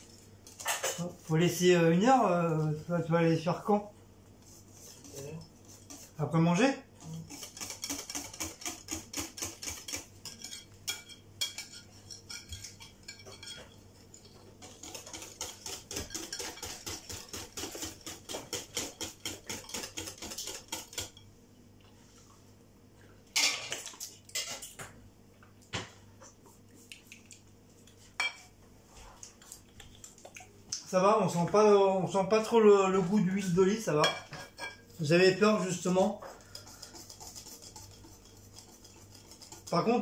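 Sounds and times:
metal whisk beating in a bowl: 0:04.8 - 0:21.2, 0:35.5 - 0:40.0.

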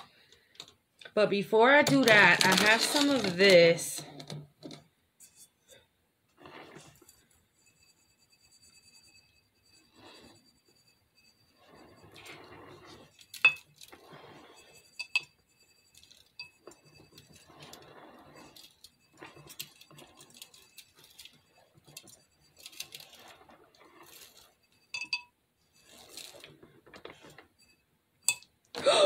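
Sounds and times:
fake snow rattling in a jar: 0:01.4 - 0:04.2, 0:06.4 - 0:28.5
glass clinks: 0:24.9 - 0:25.4, 0:28.2 - 0:28.5.

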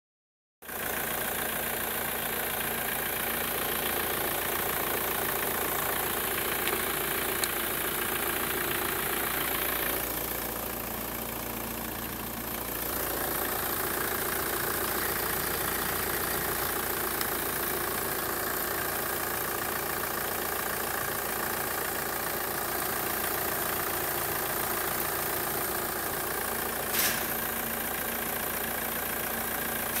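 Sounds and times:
diesel engine idling: 0:00.6 - 0:30.0
sharp click: 0:26.9 - 0:27.4.

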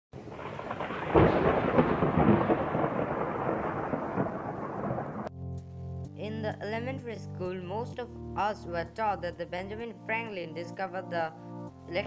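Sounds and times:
rolling thunder: 0:00.2 - 0:05.3.

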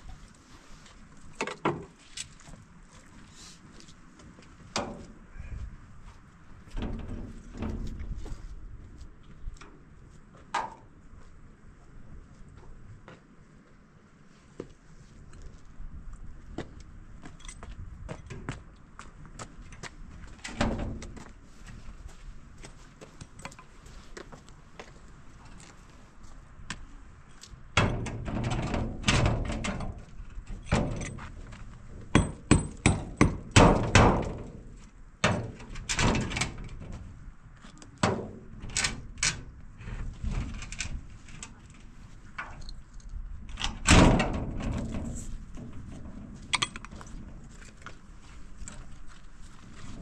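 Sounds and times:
hammer strikes: 0:32.1 - 0:33.4.

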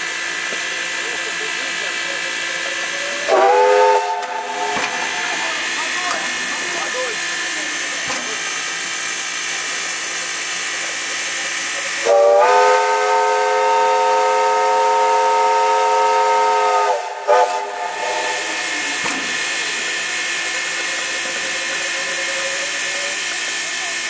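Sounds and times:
steam locomotive hissing: 0:00.0 - 0:24.0
steam whistle chord: 0:03.1 - 0:05.2, 0:12.0 - 0:18.4.

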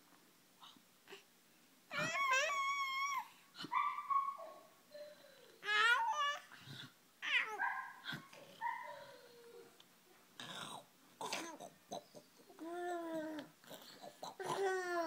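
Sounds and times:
baby squealing and babbling: 0:01.9 - 0:04.5, 0:05.6 - 0:06.5, 0:07.2 - 0:07.6.

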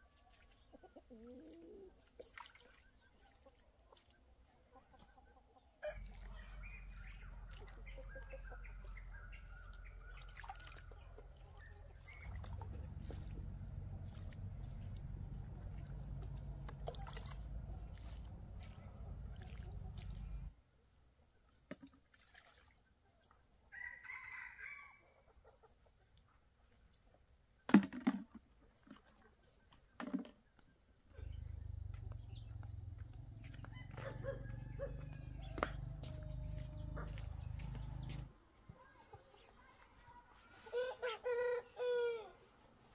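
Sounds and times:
chickens clucking: 0:00.6 - 0:02.1, 0:04.7 - 0:14.1, 0:31.2 - 0:42.2
low rumble: 0:12.2 - 0:20.5
rooster crowing: 0:23.8 - 0:25.1, 0:33.6 - 0:36.8, 0:40.7 - 0:42.4.

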